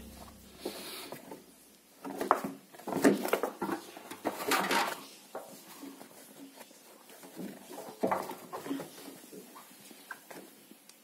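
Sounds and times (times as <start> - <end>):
caps rustling and knocking: 2.0 - 10.6.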